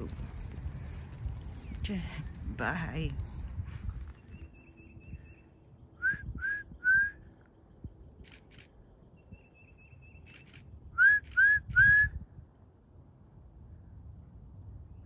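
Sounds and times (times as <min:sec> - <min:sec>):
short rising whistles: 0:06.0 - 0:07.2, 0:10.3 - 0:12.2.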